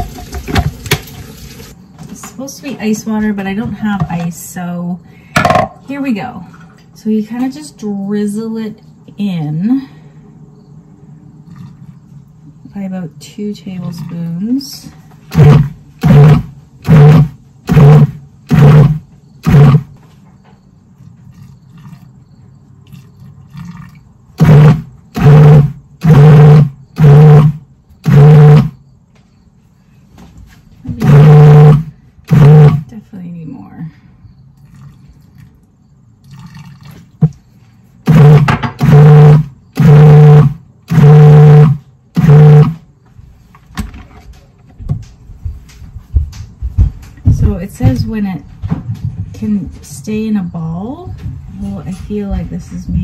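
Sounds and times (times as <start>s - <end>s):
food processor motor pulsing: 15.3s - 20.0s, 24.4s - 28.8s, 30.9s - 32.9s, 38.1s - 42.8s.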